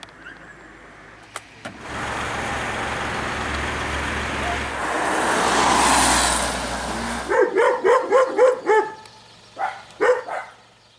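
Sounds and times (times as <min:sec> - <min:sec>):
car tyres hissing on wet road: 0:04.7 - 0:07.3
dog barking: 0:07.3 - 0:09.0, 0:09.6 - 0:10.6.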